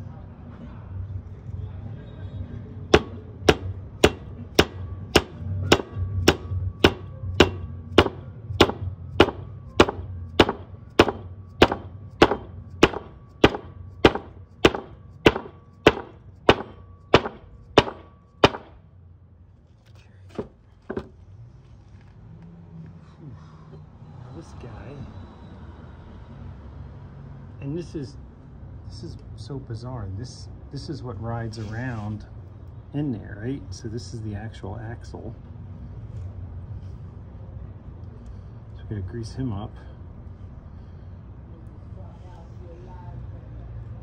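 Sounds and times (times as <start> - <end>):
mallet striking metal: 2.9 - 18.8.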